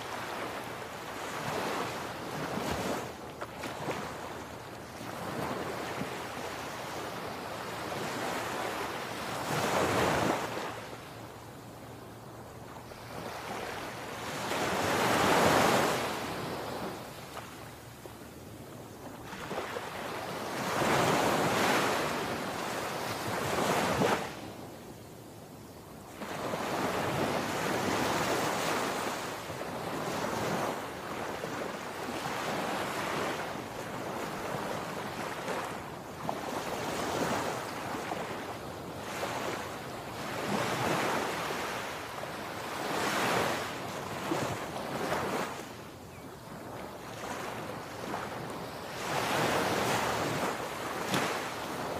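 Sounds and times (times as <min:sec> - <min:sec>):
waves crashing on beach: 0:00.0 - 0:18.1, 0:18.8 - 0:25.4, 0:26.0 - 0:51.9.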